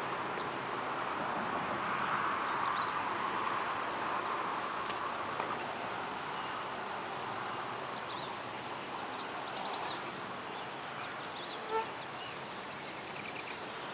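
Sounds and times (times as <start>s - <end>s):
steady rushing hiss: 8.5s - 13.9s.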